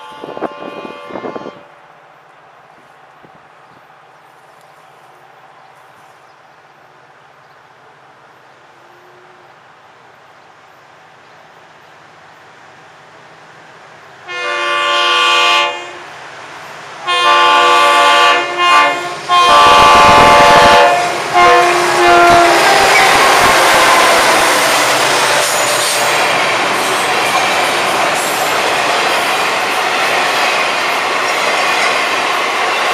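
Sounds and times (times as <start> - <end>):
locomotive air horn blasts: 0.0 - 1.8, 14.3 - 16.1, 17.1 - 26.3.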